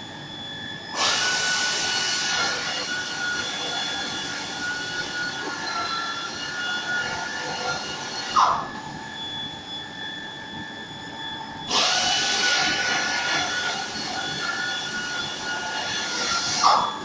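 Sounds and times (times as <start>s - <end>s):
press machine whining: 0.3s - 17.0s.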